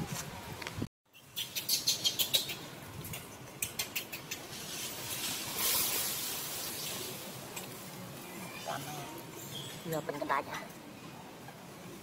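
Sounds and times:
leaves and twigs rustling: 4.3 - 9.9.

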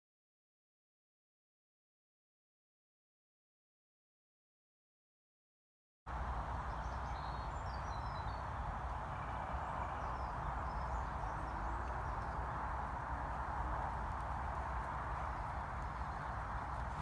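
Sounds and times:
small birds chirping: 6.1 - 17.0
steady rushing background noise: 6.1 - 17.0.

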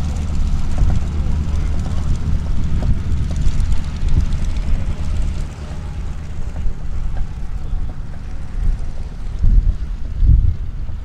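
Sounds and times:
propeller aircraft engines droning: 0.0 - 11.0.

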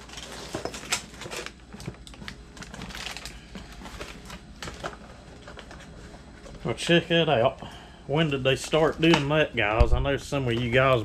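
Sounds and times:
packaging rustling: 0.0 - 6.7.

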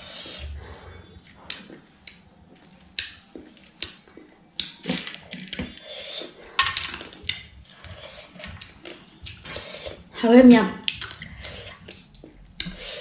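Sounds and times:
wet chewing: 10.8 - 13.0.

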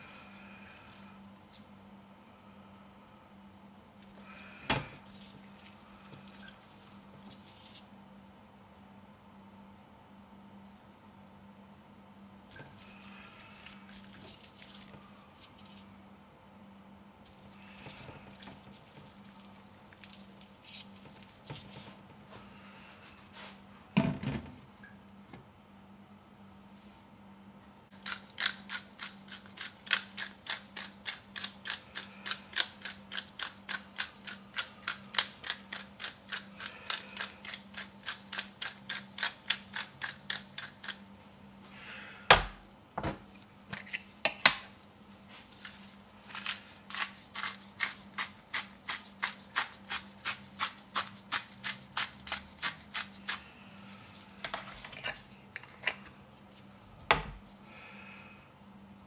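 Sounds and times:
pepper mill grinding: 28.0 - 41.1, 45.6 - 56.0.

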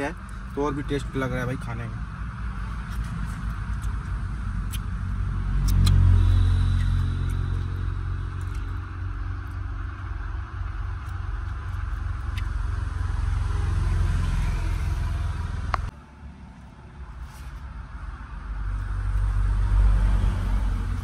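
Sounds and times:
road vehicles rumbling past: 0.0 - 21.0
sharp click: 5.6 - 6.2.

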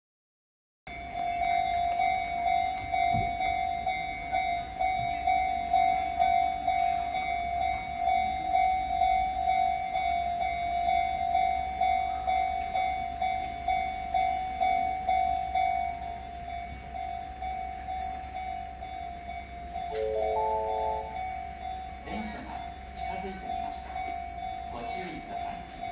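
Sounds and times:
level crossing warning bell: 0.9 - 25.9.

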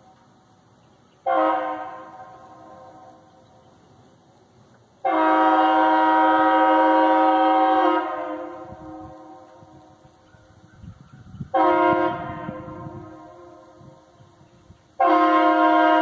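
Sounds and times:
train horn blast: 1.2 - 3.3, 5.0 - 9.8, 11.5 - 13.9, 15.0 - 16.0.

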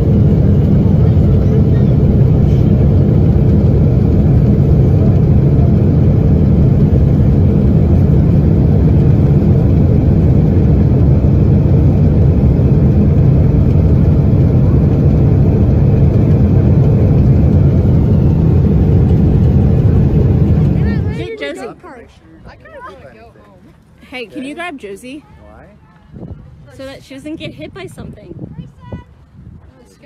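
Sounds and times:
airliner cabin noise: 0.0 - 21.6
low roar of jet engine: 0.0 - 21.8.

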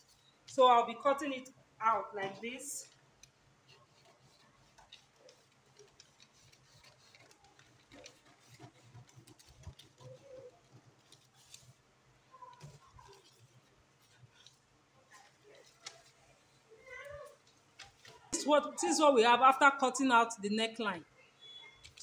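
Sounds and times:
paper crackling: 2.0 - 18.8, 21.4 - 22.0
scissors snipping paper: 2.4 - 18.4.

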